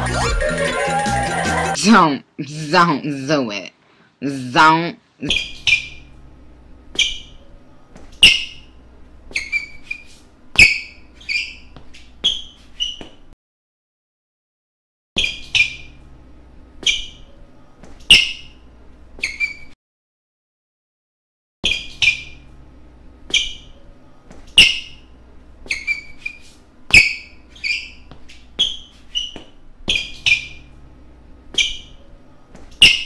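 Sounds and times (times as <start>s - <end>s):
faint room hum: 1.8s - 12.6s, 15.5s - 19.7s, 21.8s - 33.0s
sneakers squeaking on floor: 5.2s - 6.1s, 6.9s - 13.4s, 15.2s - 16.0s, 16.8s - 18.6s, 19.2s - 19.8s, 21.6s - 22.5s, 23.2s - 30.8s, 31.5s - 33.0s.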